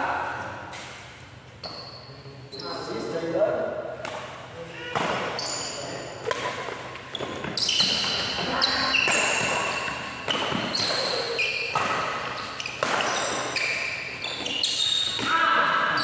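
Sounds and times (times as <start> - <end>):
shoes squeaking on court: 0.8 - 3.1, 5.3 - 16.0
rackets striking shuttlecock: 6.2 - 15.3.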